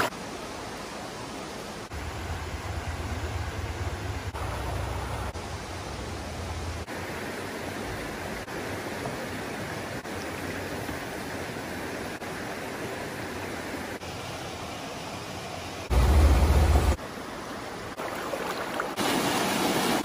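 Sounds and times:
creek water rushing over rocks: 0.0 - 20.0
low rumble: 1.9 - 6.9, 15.9 - 17.0.

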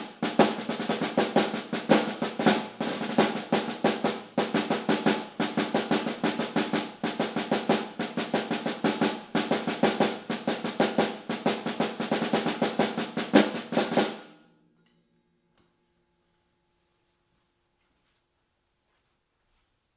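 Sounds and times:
snare drum rudimental solo: 0.0 - 14.3.

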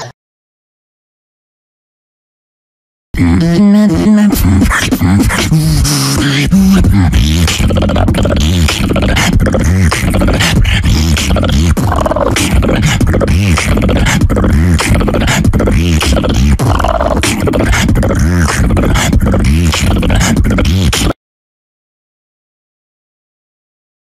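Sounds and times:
beatboxing beat: 3.2 - 21.2
deep bending bass: 3.2 - 21.2.

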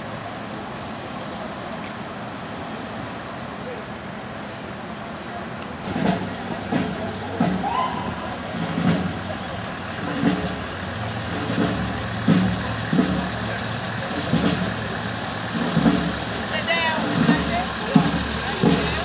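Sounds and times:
car engine idling: 5.6 - 19.0
low irregular thumps: 8.5 - 19.0.

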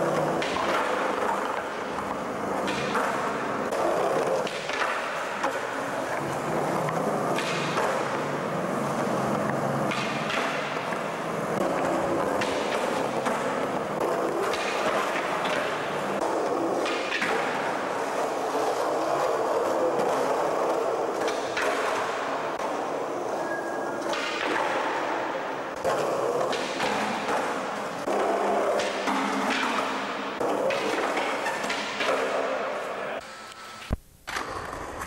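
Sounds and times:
skateboard clacking: 0.0 - 23.3, 24.0 - 32.9
skateboard wheels rolling on concrete: 0.0 - 33.2, 34.2 - 35.0.

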